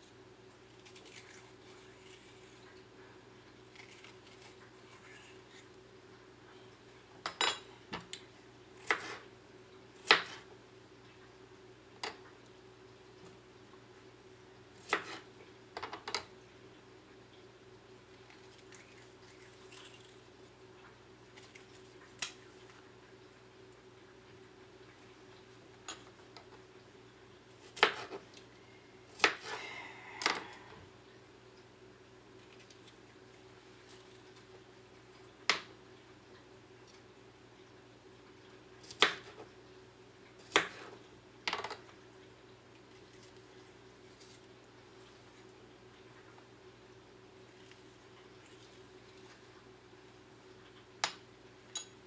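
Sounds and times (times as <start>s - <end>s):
faint steady hum: 0.0s - 52.0s
knife on cutting board: 14.9s - 15.2s, 27.8s - 28.2s.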